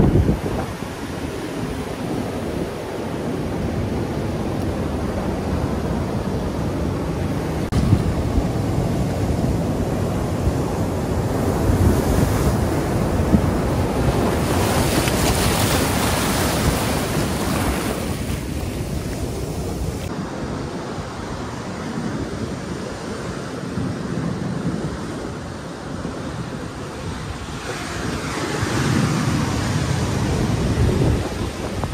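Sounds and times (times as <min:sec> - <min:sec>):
ocean surf breaking: 0:00.0 - 0:31.9
wind buffeting microphone: 0:00.0 - 0:31.9.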